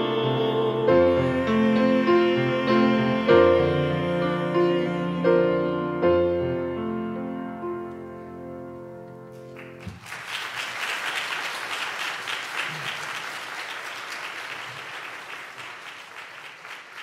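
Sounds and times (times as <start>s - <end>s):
piano chord: 0.0s - 9.8s
audience applause: 9.5s - 17.0s.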